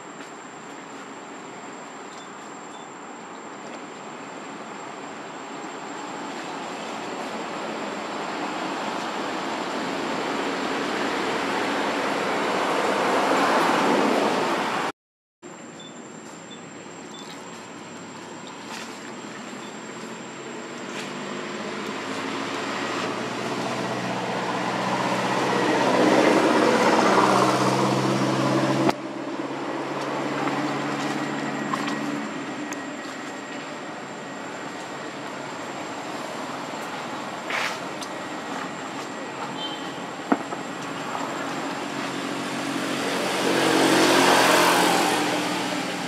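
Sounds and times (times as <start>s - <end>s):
passing vehicle engine hum: 17.5s - 46.0s.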